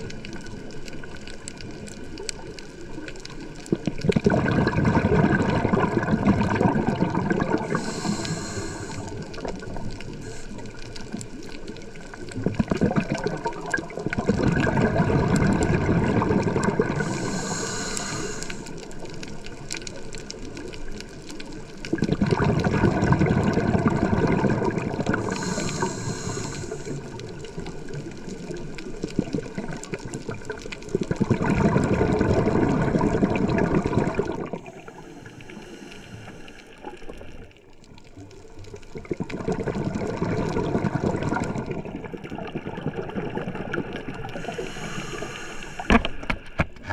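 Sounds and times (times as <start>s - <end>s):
exhaled bubbles gurgling: 0.0s - 46.9s
regulator inhale hiss: 7.5s - 11.2s, 16.9s - 19.2s, 25.1s - 27.8s, 34.6s - 37.2s, 44.3s - 46.9s.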